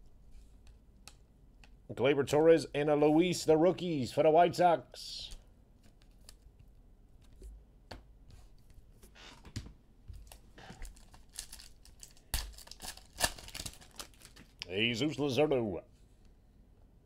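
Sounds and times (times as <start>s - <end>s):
handling cards: 5.2s - 14.8s
wrapper crinkling and tearing: 10.2s - 14.6s.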